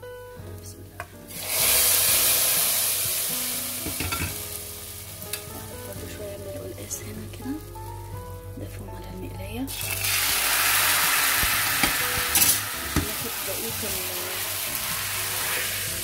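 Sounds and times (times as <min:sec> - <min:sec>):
hot oil hissing in soup: 0:01.3 - 0:06.3, 0:09.7 - 0:16.0
ladle knocking on pot: 0:03.8 - 0:04.4, 0:11.4 - 0:13.2.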